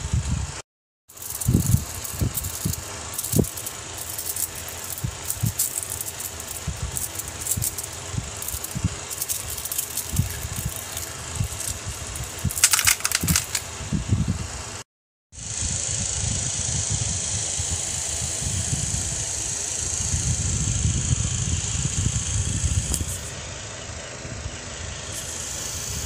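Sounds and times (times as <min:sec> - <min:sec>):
magnetic metal balls clicking: 0:01.1 - 0:13.7.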